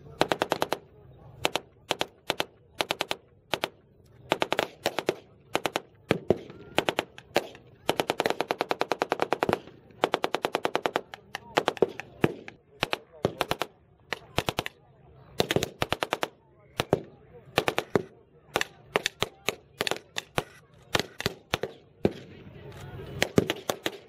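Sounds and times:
machine guns firing bursts: 0:00.2 - 0:00.8, 0:01.4 - 0:14.7, 0:15.4 - 0:22.3, 0:23.2 - 0:24.0.

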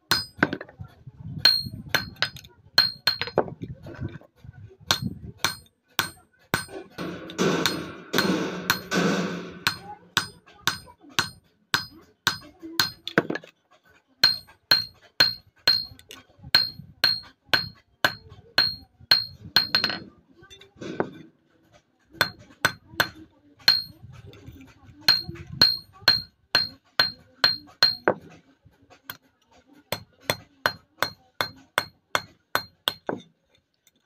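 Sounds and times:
hammer ringing on steel: 0:00.1 - 0:00.6, 0:01.4 - 0:03.4, 0:04.9 - 0:13.1, 0:14.2 - 0:16.0, 0:16.6 - 0:20.1, 0:22.2 - 0:24.0, 0:25.1 - 0:28.2.

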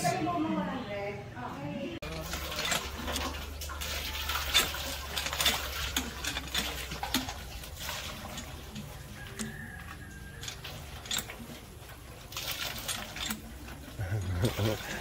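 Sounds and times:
clinks and knocks: 0:02.0 - 0:13.8
water splashing into metal basin: 0:02.0 - 0:15.0.

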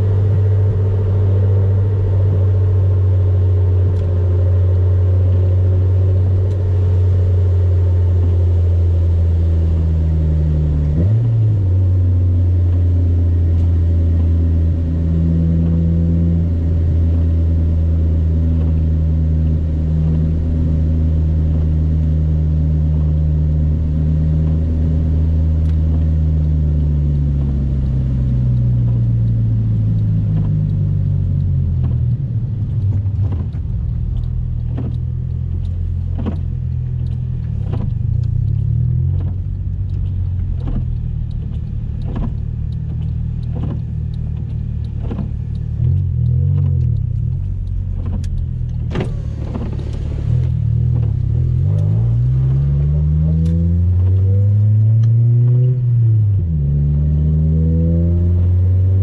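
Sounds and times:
car engine and road drone: 0:00.0 - 0:59.0
faint ticks: 0:25.6 - 0:54.2.

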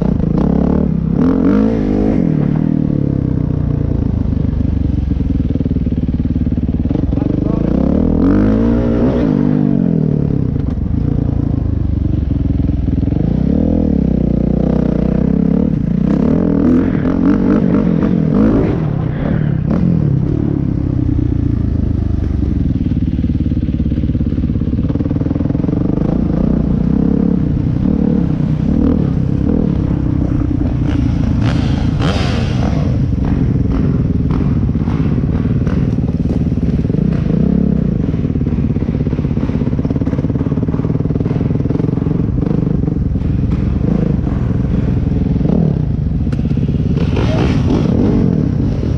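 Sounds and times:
dirt bike engine revving: 0:06.9 - 0:10.7, 0:24.8 - 0:48.9
rush of noise: 0:15.0 - 0:48.9.

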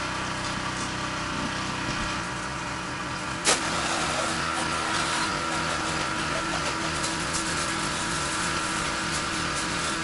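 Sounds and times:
pressure washer engine hum: 0:00.0 - 0:10.0
water jet hissing on siding: 0:03.4 - 0:10.0.

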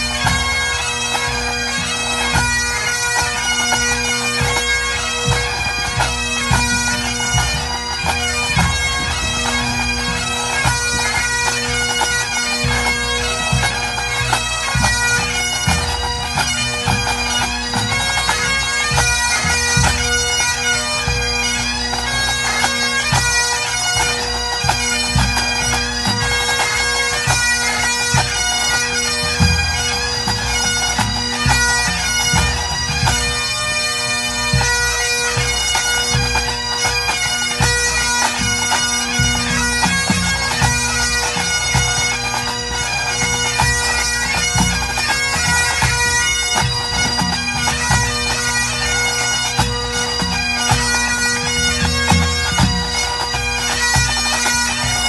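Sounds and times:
bagpipes playing melody: 0:00.0 - 0:55.0
drums beating: 0:05.2 - 0:11.6.

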